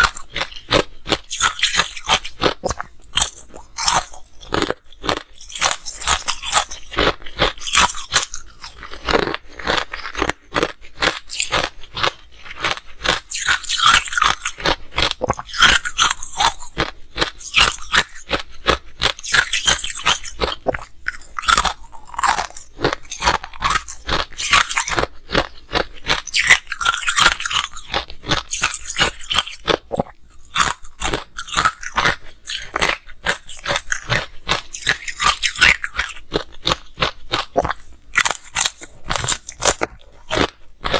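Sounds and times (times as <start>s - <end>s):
crunching and chewing ice: 0.0s - 40.9s.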